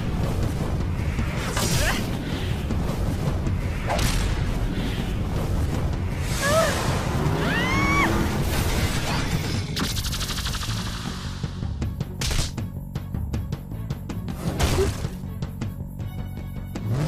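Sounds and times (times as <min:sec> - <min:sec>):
whooshes and impacts: 0:00.0 - 0:07.4
driving action music: 0:00.0 - 0:17.0.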